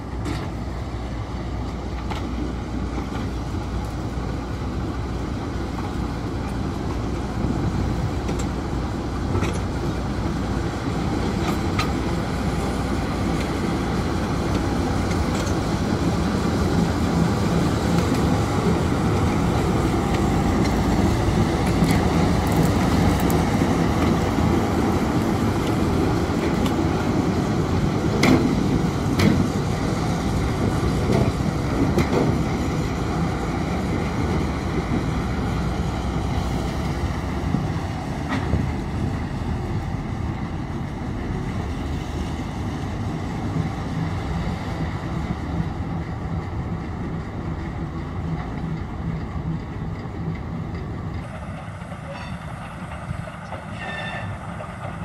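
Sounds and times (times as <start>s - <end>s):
diesel locomotive engine rumbling: 0.0s - 55.0s
wheels clicking on track: 1.5s - 55.0s.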